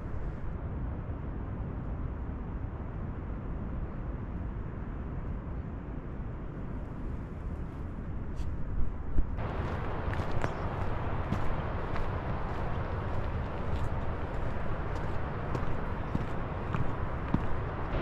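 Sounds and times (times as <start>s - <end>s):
wind buffeting microphone: 3.2s - 18.0s.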